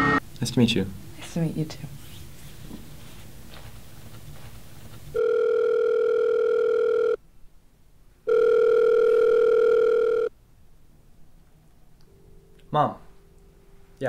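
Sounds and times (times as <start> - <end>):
telephone ringing tone: 5.2 - 7.2, 8.3 - 10.3.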